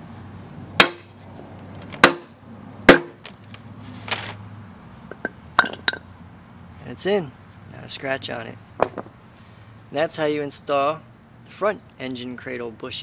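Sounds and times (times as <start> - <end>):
mallet striking wooden block: 0.8 - 1.1, 2.0 - 2.3, 2.9 - 3.2.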